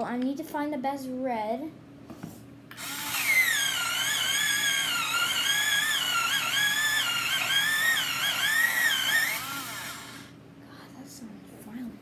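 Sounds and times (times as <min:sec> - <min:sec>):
electric pencil sharpener whine: 0:02.7 - 0:10.4.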